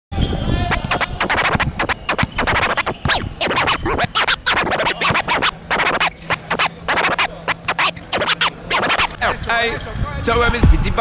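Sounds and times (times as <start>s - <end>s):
music track: 0.7s - 9.2s
record scratching: 0.7s - 9.4s.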